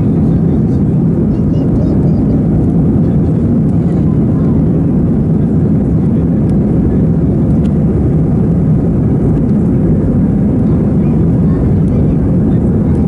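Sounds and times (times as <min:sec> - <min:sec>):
airliner cabin engine rumble: 0:00.0 - 0:13.0.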